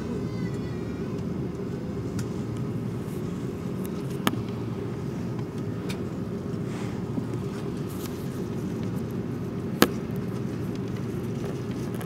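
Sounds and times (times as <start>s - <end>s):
jet cabin engine rumble: 0.0s - 12.0s.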